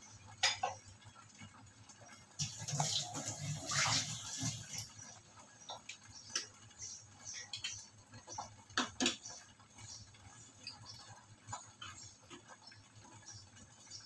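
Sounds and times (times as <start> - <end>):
gravy bubbling in a pan: 0.0 - 14.0.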